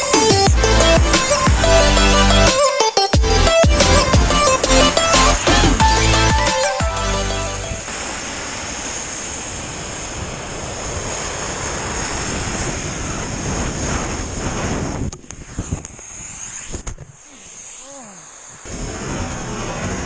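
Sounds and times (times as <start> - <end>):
wind rushing over microphone: 7.7 - 17.6.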